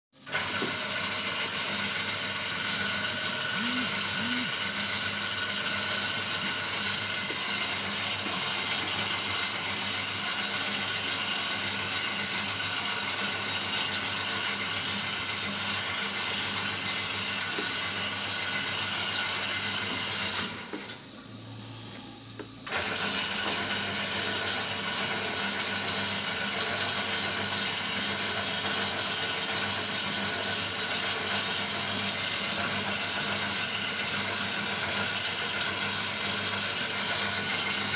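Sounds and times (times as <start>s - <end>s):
machine running: 0.2s - 11.4s.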